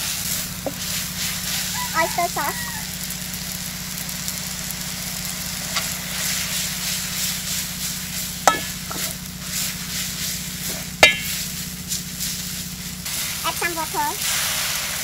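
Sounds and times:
low hum: 0.0s - 14.2s
sizzling: 0.0s - 15.0s
spatula scraping noodles in wok: 5.8s - 13.5s
spatula clanging on wok: 8.5s - 9.2s, 11.0s - 11.5s.

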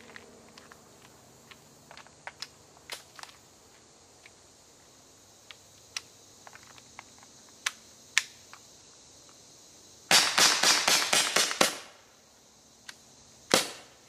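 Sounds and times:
air revolver shots popping: 10.1s - 11.9s, 13.5s - 13.9s.

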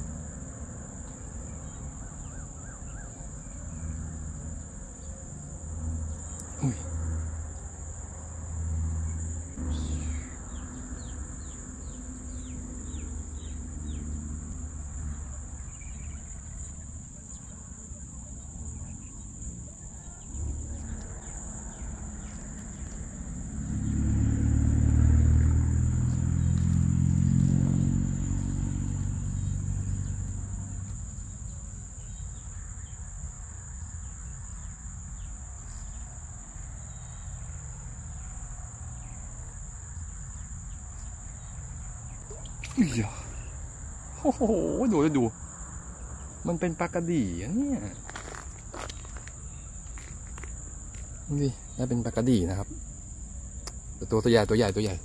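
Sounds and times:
passing vehicle engine: 0.0s - 16.8s, 20.2s - 31.9s
insects chirring: 0.0s - 55.0s.

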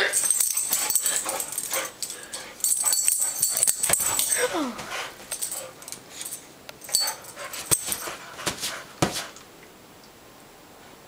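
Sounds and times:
thumps and rustling on cushions: 2.6s - 6.3s, 7.4s - 9.4s.

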